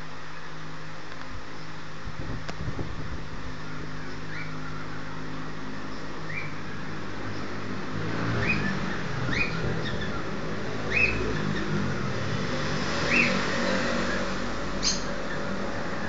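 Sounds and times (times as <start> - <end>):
cockatiel chirping: 4.0 - 4.9, 6.3 - 6.6, 8.4 - 10.3, 10.9 - 11.7, 14.8 - 15.5.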